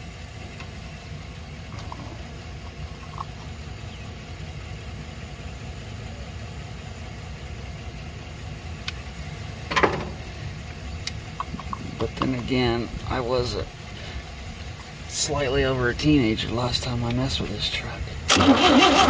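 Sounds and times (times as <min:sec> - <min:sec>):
low rumble: 0:00.0 - 0:18.3
metallic clank: 0:09.7 - 0:10.3.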